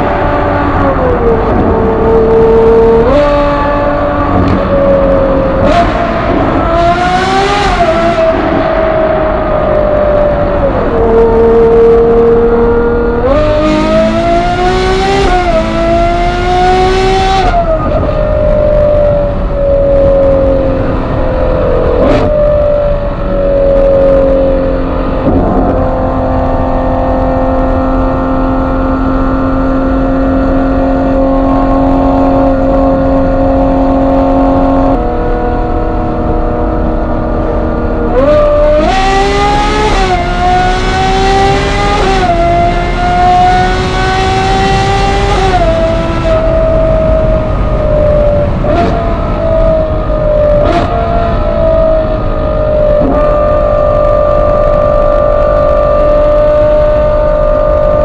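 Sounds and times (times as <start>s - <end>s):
car engine accelerating: 0.0s - 58.0s
engine cruising: 0.0s - 58.0s
exhaust crack: 25.1s - 26.8s.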